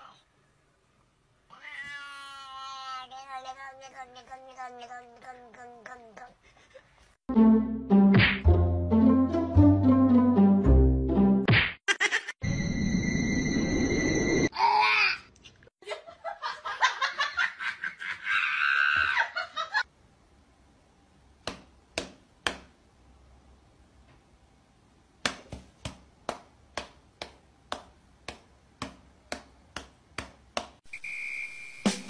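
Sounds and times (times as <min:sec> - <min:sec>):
hand and cat paw patting: 0:25.2 - 0:30.8.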